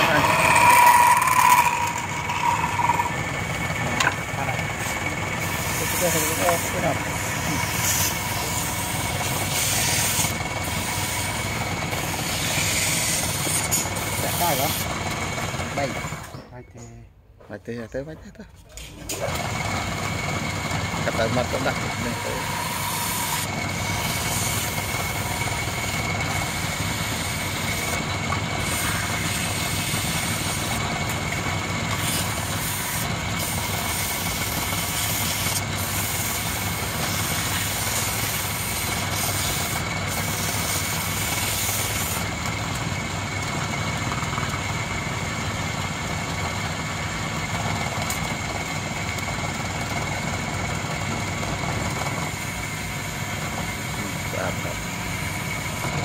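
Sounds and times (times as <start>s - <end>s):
sandpaper hissing on spinning wood: 0.0s - 3.2s, 4.7s - 15.0s, 21.2s - 30.9s, 31.9s - 42.3s
wood lathe whining: 0.0s - 16.4s, 19.1s - 56.0s.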